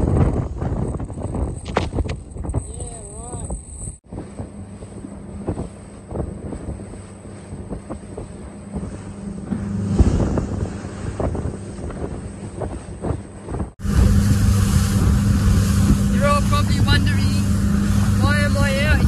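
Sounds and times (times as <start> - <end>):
outboard motor running: 0.0 - 19.0
wind buffeting microphone: 0.0 - 19.0
hull knocking on choppy water: 4.1 - 19.0.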